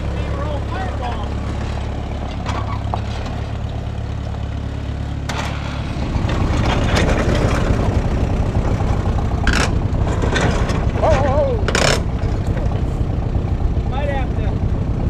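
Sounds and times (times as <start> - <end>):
tractor engine idling: 0.0 - 15.0
metallic clanks: 9.4 - 13.1.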